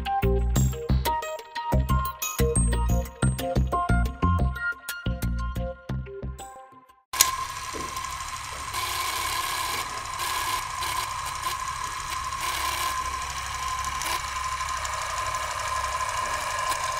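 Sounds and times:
film projector whirring: 0:07.2 - 0:16.9.

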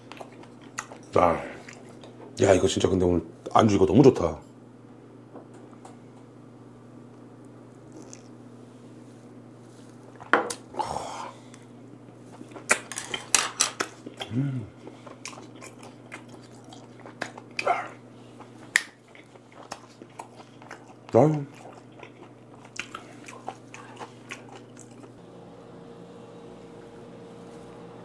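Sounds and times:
chewing: 0:00.0 - 0:02.3, 0:07.9 - 0:08.4, 0:11.5 - 0:25.2
steady low hum: 0:00.0 - 0:28.0
person humming: 0:14.2 - 0:14.8.

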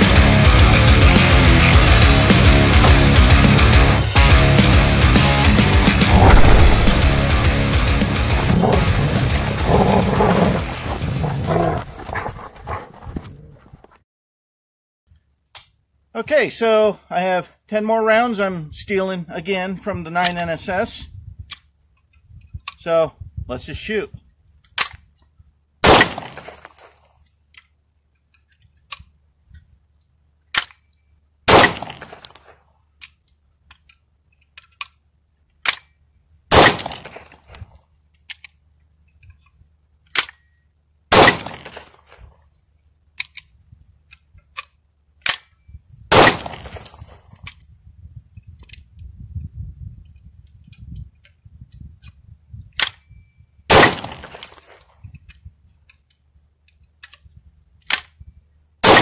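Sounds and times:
pistol gunshots with echo: 0:06.1 - 0:07.6, 0:25.8 - 0:26.6, 0:31.5 - 0:32.4, 0:36.5 - 0:37.2, 0:41.1 - 0:41.9, 0:46.1 - 0:46.8, 0:53.7 - 0:54.5
gun handling clicks: 0:24.6 - 0:25.3, 0:26.4 - 0:29.2, 0:30.0 - 0:31.1, 0:31.8 - 0:36.0, 0:36.8 - 0:40.6, 0:43.1 - 0:45.7, 0:46.7 - 0:47.7, 0:48.5 - 0:49.0, 0:52.0 - 0:53.1, 0:54.0 - 0:58.2.

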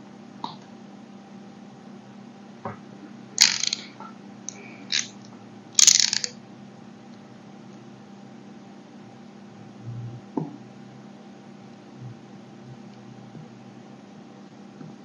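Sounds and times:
utility knife crunching and clicking: 0:04.9 - 0:05.1.

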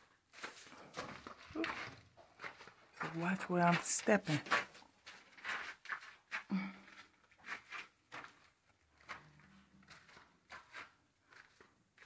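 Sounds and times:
footsteps crunching on rough floor: 0:00.0 - 0:12.0.

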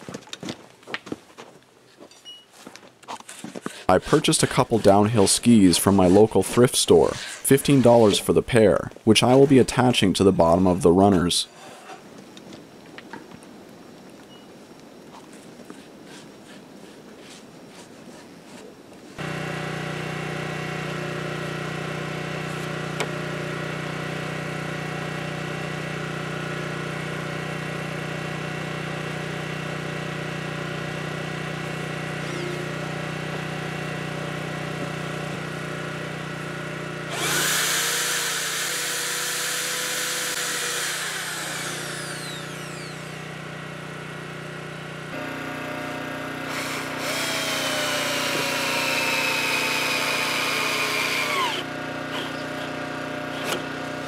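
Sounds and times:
electric drill boring: 0:31.9 - 0:33.5, 0:34.4 - 0:43.9, 0:46.4 - 0:53.7.

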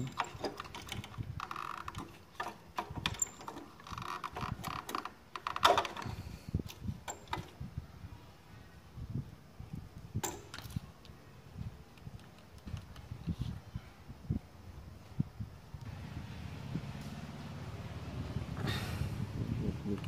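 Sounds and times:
handling clicks and knocks: 0:00.0 - 0:06.1, 0:10.2 - 0:10.9.

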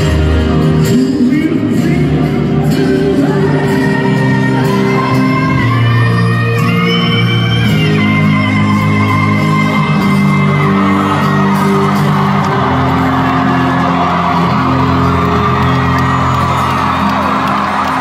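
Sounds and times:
acoustic guitar chords: 0:00.0 - 0:18.0
crowd whooping and cheering: 0:08.6 - 0:18.0.

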